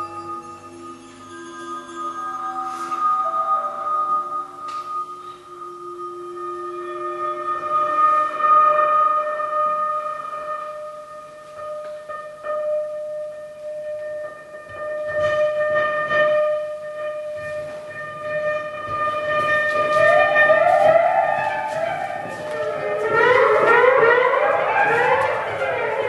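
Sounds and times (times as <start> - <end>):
siren-like electronic glides: 18.5 - 26.0.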